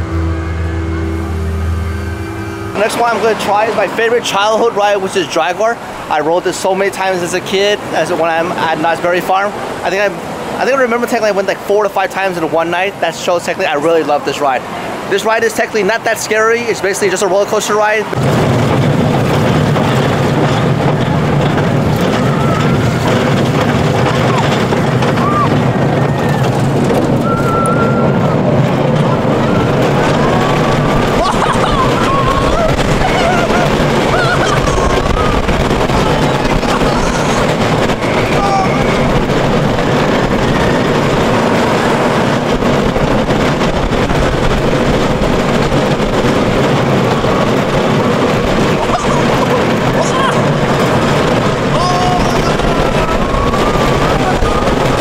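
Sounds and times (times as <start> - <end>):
roller coaster rumbling on track: 0.0 - 55.0
wind noise: 18.0 - 55.0
faint high squeals: 27.2 - 28.4.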